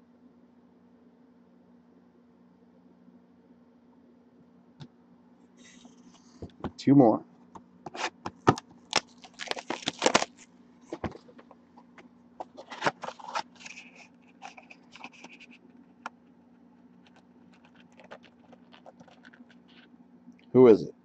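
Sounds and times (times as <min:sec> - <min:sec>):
cardboard scraping and crinkling: 0:09.0 - 0:11.5, 0:12.4 - 0:15.6.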